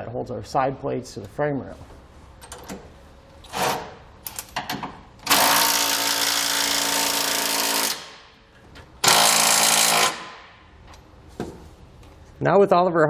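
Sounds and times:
impact wrench hammering: 4.6 - 8.4, 9.0 - 10.6.

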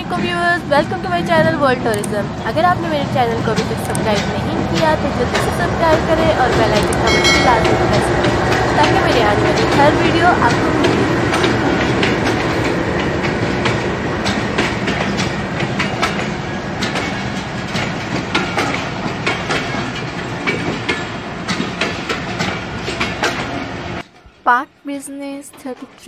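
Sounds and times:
train wheels clacking over joints: 0.0 - 24.4
train rumble: 0.0 - 26.0.

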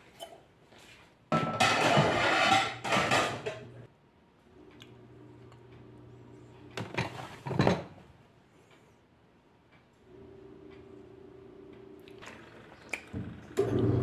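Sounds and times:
dishes clattering in a sink: 1.3 - 3.8, 6.8 - 7.9
faint steady hum: 8.0 - 14.0.

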